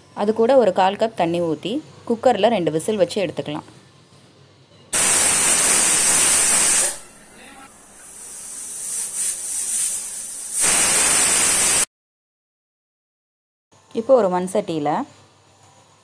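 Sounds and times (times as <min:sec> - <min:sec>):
pressure cooker whistling: 0:05.0 - 0:11.9
soft steam hiss: 0:05.0 - 0:11.9.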